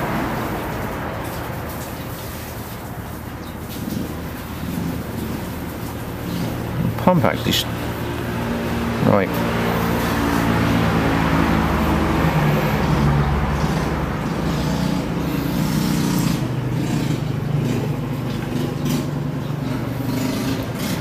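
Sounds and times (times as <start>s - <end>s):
motor droning: 7.7s - 21.0s.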